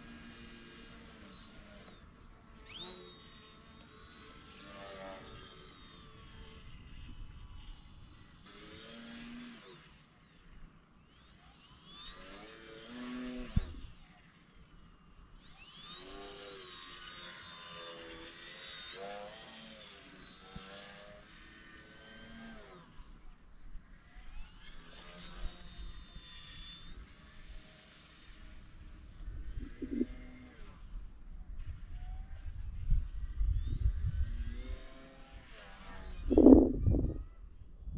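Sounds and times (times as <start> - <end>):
model plane motor whine: 0.0 - 37.9
wind rumble on microphone: 29.2 - 37.9.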